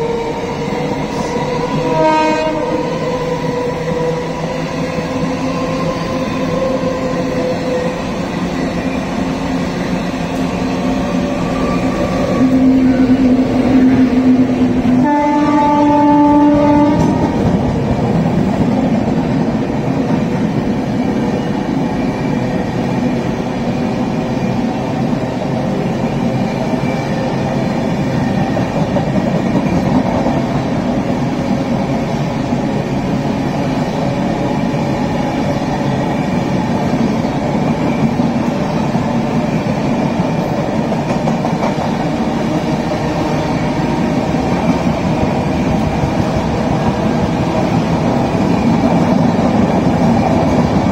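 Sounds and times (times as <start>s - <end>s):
train rumble and wheel clatter: 0.0s - 50.9s
electric locomotive horn blasts: 1.7s - 2.9s, 14.9s - 17.5s.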